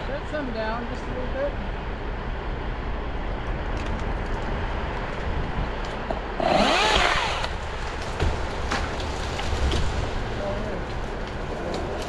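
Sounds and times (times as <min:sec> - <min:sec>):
truck engine rumbling: 0:00.0 - 0:12.0
chainsaw revving: 0:06.2 - 0:07.7.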